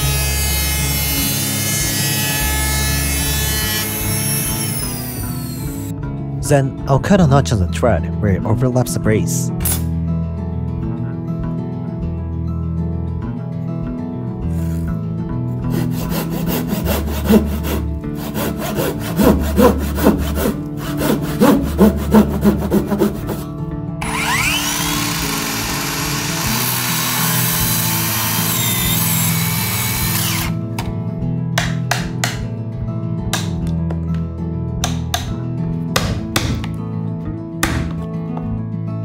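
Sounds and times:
handsaw cutting wood: 0.0s - 5.9s, 15.7s - 30.6s
power tool whining: 0.0s - 5.9s, 24.0s - 30.7s.

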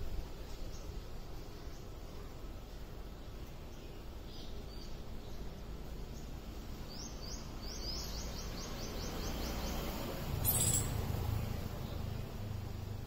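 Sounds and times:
small bird calling: 10.4s - 11.0s.

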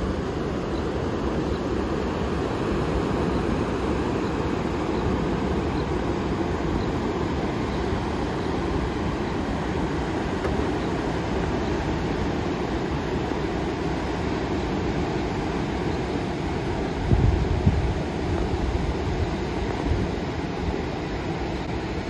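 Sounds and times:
surf on a beach: 0.0s - 22.0s
wind: 0.0s - 22.0s.

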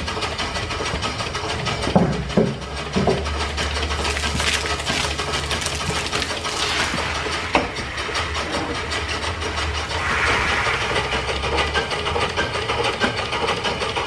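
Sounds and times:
water splashing on ground: 4.0s - 7.2s
steam blowing from exhaust: 5.9s - 13.4s
steam engine beat: 7.0s - 14.0s.

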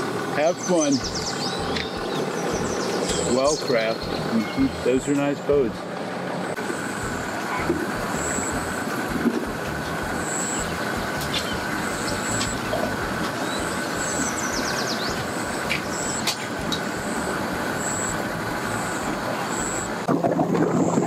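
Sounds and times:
boat engines idling: 0.0s - 21.0s
falling chirps: 9.8s - 20.0s.

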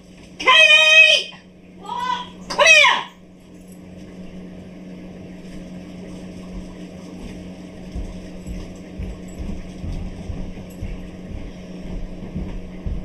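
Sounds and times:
steady low hum: 0.0s - 13.0s
soft low thumps: 6.5s - 13.0s.

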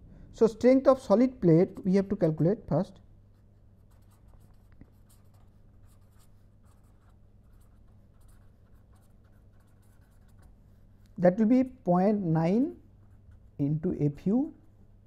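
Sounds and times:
pen scratching on paper: 3.8s - 10.8s.

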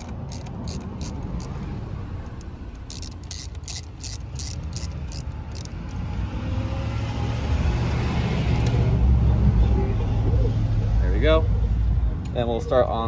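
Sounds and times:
ratchet wrench clicking: 0.0s - 6.2s.

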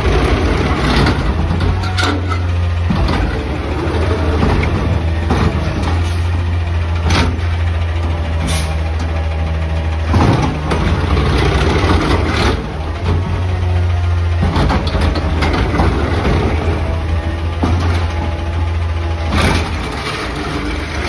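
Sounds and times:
garbage truck running: 0.0s - 21.0s
mechanical arm clanks and knocks: 0.8s - 7.6s, 14.3s - 21.0s.

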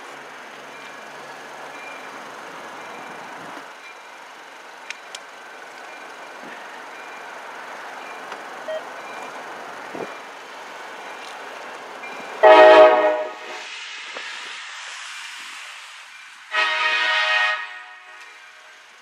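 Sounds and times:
faint street ambience: 0.0s - 19.0s
locomotive air horn chord: 12.4s - 13.6s, 16.5s - 18.8s.

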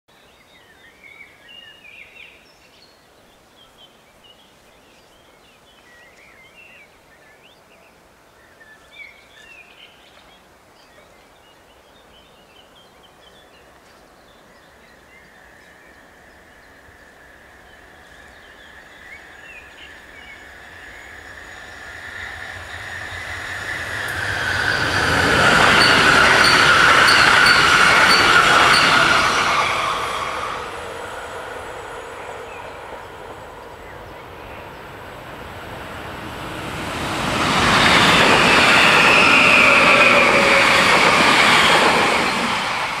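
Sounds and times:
electric train passing: 15.5s - 43.0s
birds chirping: 17.6s - 43.0s
hum from the rails: 20.5s - 43.0s.

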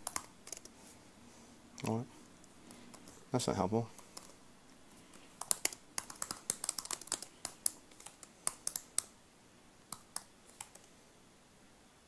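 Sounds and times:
typing on computer keyboard: 0.0s - 0.7s, 5.4s - 9.1s.

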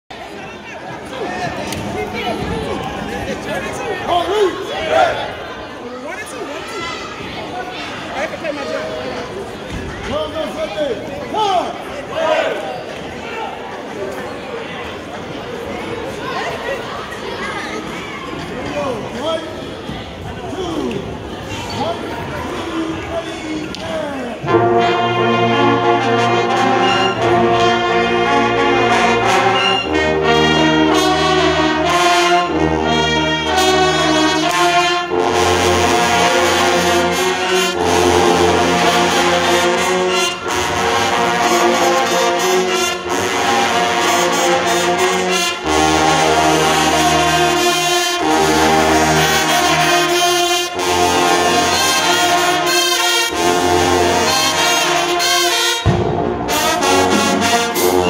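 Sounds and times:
marching band playing brass: 24.4s - 58.0s
deep sousaphone notes: 24.5s - 55.0s.

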